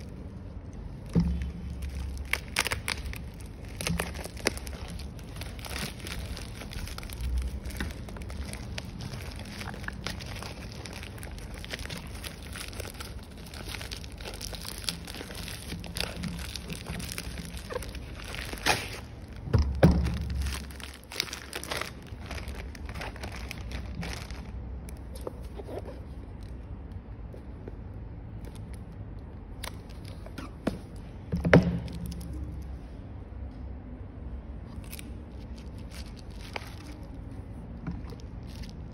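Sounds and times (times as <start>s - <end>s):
plastic wrap crinkling: 0.0s - 26.6s, 34.7s - 38.9s.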